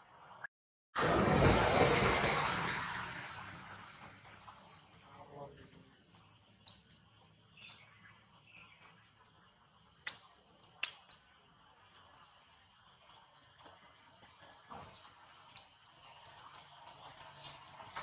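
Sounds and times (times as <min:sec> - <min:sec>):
high-pitched insect drone: 0:02.2 - 0:18.0
sharp click: 0:10.8 - 0:11.2.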